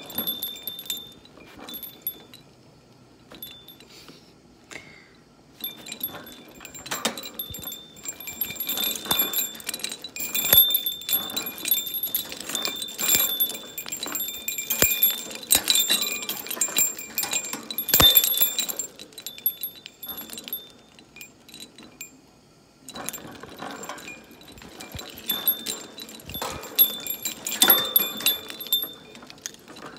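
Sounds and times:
small metal bell jingling: 0.0s - 2.5s, 3.3s - 4.0s, 5.6s - 22.3s, 22.9s - 29.9s
toy knocking and rattling: 5.6s - 22.2s.

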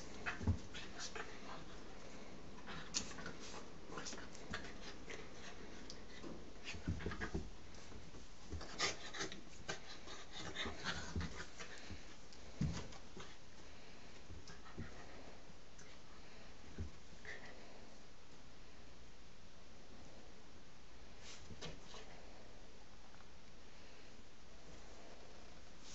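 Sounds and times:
dog and cat scuffling: 0.0s - 17.8s
soft thumps on a rug: 0.2s - 0.8s, 6.2s - 8.8s, 10.8s - 13.3s.

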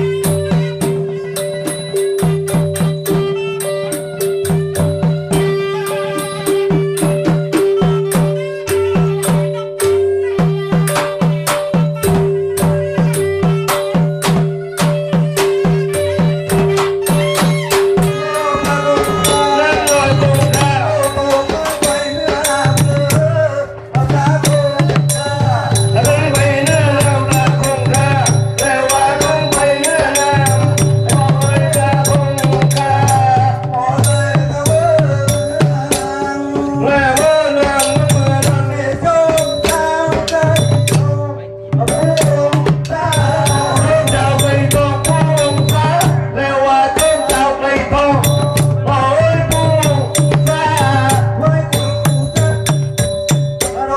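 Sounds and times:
low drum pattern: 0.0s - 53.9s
wavering melody: 0.0s - 53.9s
sustained tone: 16.2s - 46.3s.

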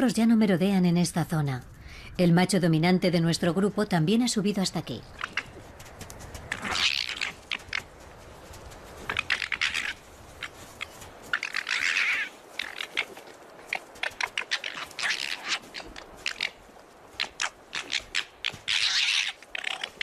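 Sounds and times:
paws crunching through snow: 5.0s - 20.0s.

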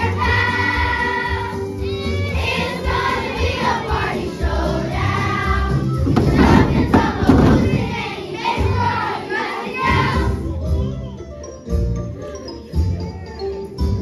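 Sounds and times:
children's choir singing: 0.0s - 10.6s
accompaniment music: 0.0s - 14.0s
sharp thump: 6.1s - 8.0s.

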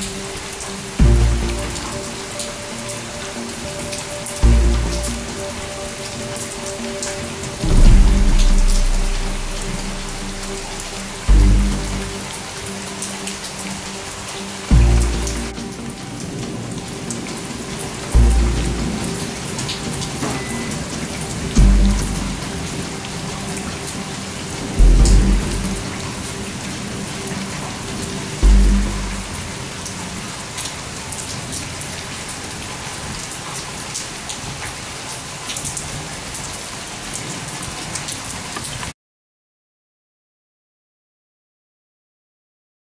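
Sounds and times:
faint background music: 0.0s - 30.3s
steady rain falling: 0.0s - 39.0s
deep low thuds: 7.6s - 10.2s, 11.2s - 12.2s, 14.7s - 15.3s, 21.6s - 22.4s, 24.8s - 25.9s, 28.4s - 29.3s.

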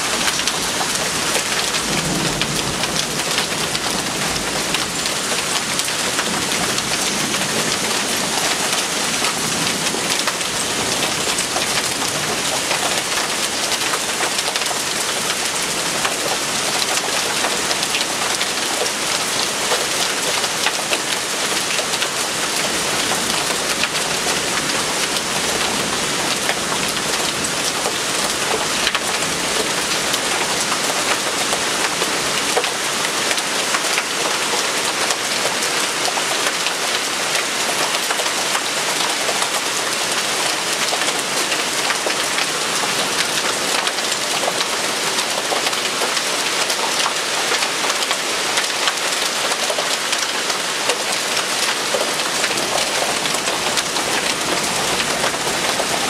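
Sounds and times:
heavy rain hissing: 0.0s - 12.4s, 50.6s - 56.0s
hailstones ticking on concrete: 0.1s - 56.0s.

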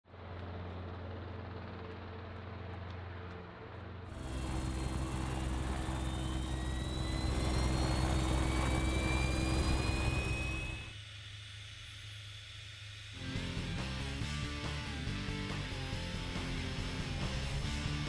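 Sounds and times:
low engine drone: 0.1s - 11.0s
steady low hum: 3.4s - 11.0s
jet turbines rushing: 3.9s - 14.3s
turbine whines rising in pitch: 4.1s - 18.0s.

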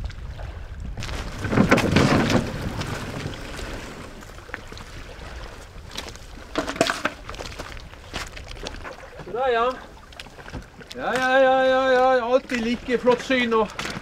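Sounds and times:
boat hull scraping over stones: 1.0s - 9.8s.

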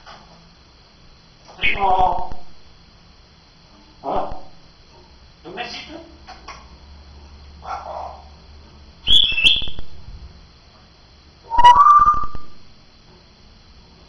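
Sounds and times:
parrot whistling: 9.1s - 9.9s, 11.5s - 12.6s.

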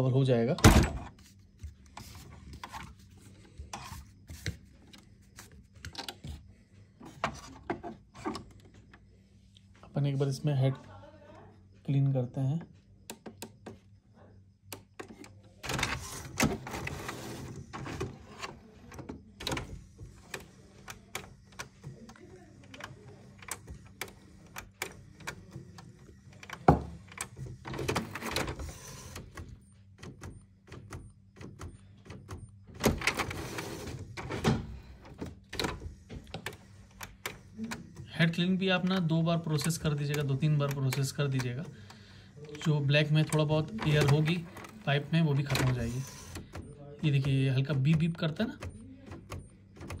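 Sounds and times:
printer clicking: 14.7s - 50.0s
printer motors whirring: 14.7s - 50.0s.

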